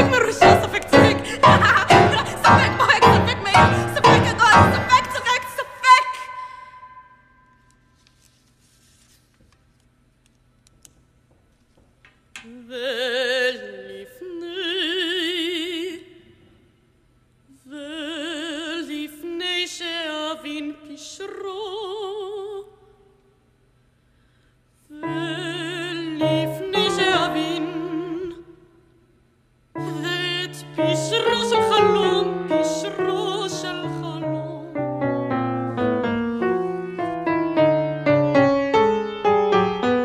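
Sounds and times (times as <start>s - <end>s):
woman singing operatically: 0.0s - 7.1s, 12.4s - 16.1s, 17.6s - 22.8s, 24.9s - 28.7s, 29.8s - 35.0s.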